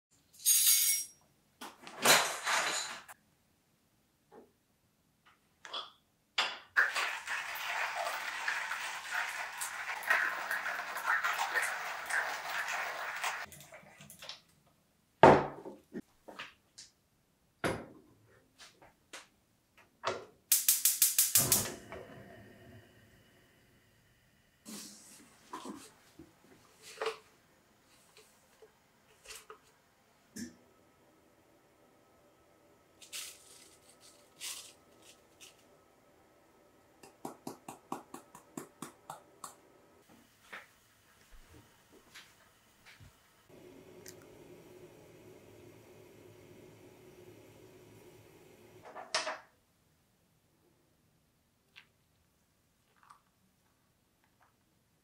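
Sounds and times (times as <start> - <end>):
gas burner hissing: 20.5 - 25.4, 42.0 - 48.8.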